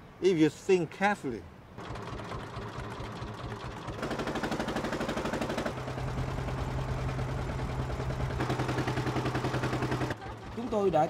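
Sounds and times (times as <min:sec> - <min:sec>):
motor boat engine chugging: 0:01.8 - 0:04.3, 0:05.8 - 0:11.0.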